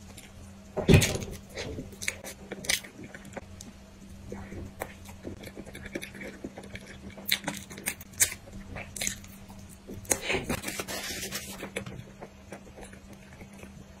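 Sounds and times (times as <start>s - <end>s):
wet chewing with mouth clicks: 1.3s - 10.7s, 11.3s - 14.0s
paper napkin rustling: 10.5s - 11.7s.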